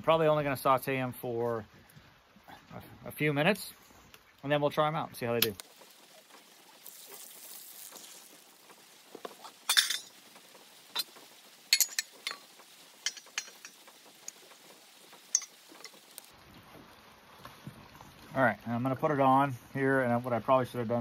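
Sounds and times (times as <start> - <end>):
metal pan and utensils clinking: 9.5 - 10.2, 11.7 - 13.8, 15.3 - 16.0.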